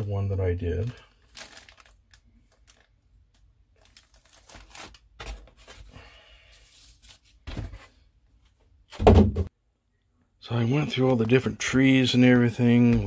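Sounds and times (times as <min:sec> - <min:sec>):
plastic and paper crinkling: 0:00.0 - 0:06.0.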